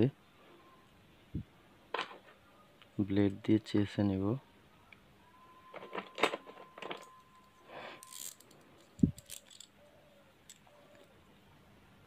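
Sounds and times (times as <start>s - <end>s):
metal tools clicking and scraping: 5.8s - 9.8s, 10.4s - 11.1s.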